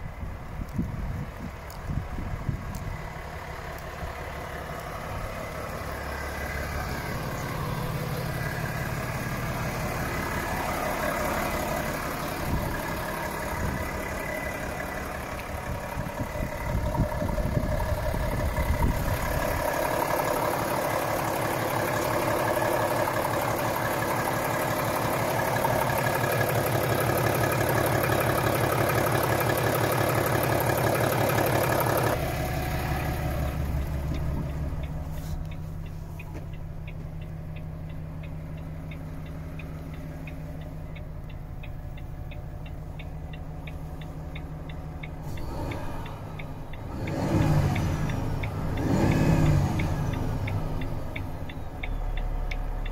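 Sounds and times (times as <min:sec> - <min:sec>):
diesel truck engine idling: 0:00.0 - 0:52.9.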